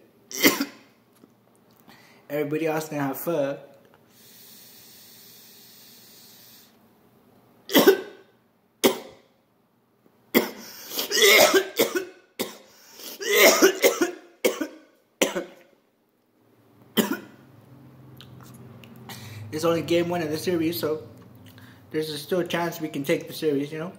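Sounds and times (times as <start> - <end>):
man coughing: 0.3 - 0.9, 7.7 - 8.2, 10.4 - 15.6, 17.0 - 17.4.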